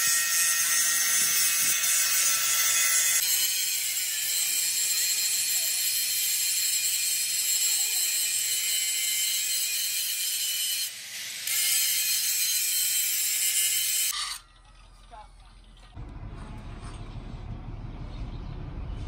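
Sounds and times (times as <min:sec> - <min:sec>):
angle grinder grinding steel: 0:00.0 - 0:14.6.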